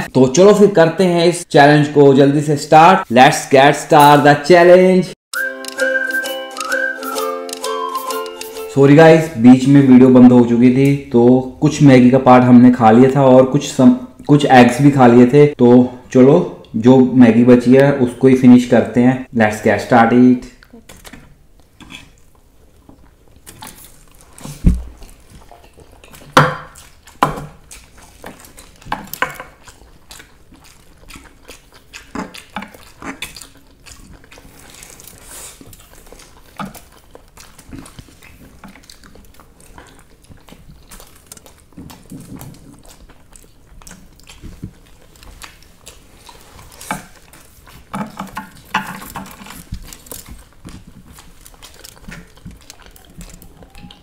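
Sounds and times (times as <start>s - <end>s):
chewing and slurping: 20.6s - 54.0s.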